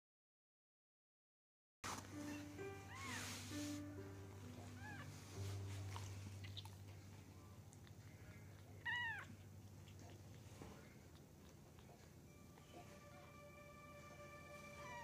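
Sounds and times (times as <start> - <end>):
kitten mewing: 8.8 - 10.2.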